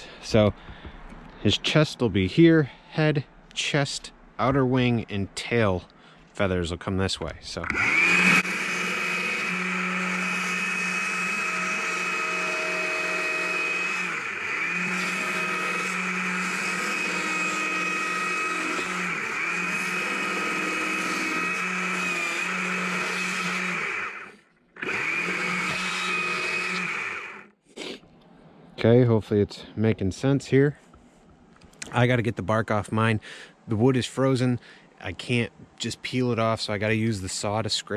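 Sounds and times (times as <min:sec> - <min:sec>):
chainsaw cutting log: 0:07.6 - 0:27.6.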